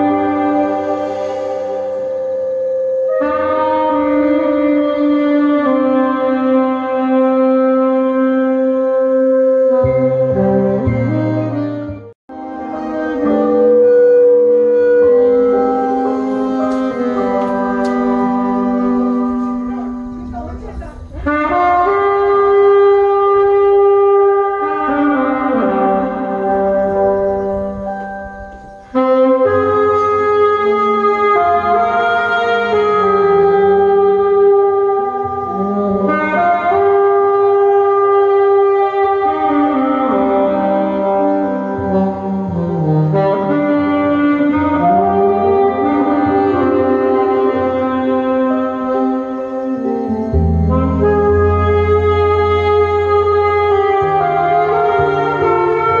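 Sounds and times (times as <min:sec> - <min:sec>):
alto saxophone: 0:00.0 - 0:56.0
wind instrument long notes: 0:00.0 - 0:56.0.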